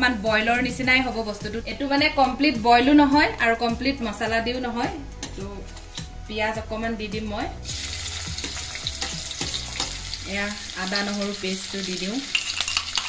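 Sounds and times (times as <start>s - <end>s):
onions sizzling in hot oil: 7.6s - 13.0s.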